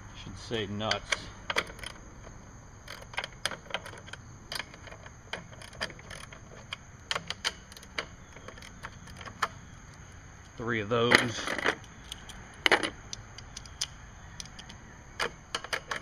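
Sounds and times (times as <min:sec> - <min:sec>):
hand wrench clicking on metal: 0:00.8 - 0:16.0.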